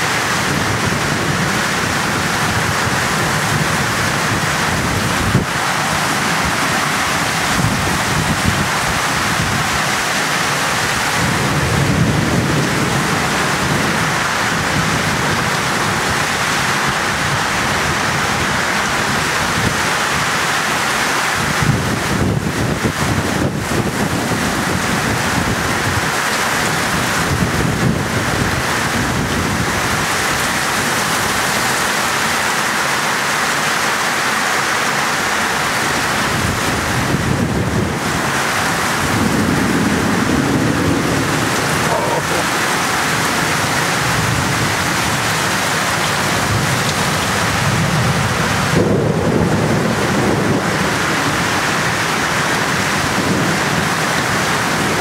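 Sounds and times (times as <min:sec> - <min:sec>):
thunder rumbling: 0:00.0 - 0:19.8, 0:35.7 - 0:55.0
pouring rain: 0:00.0 - 0:55.0.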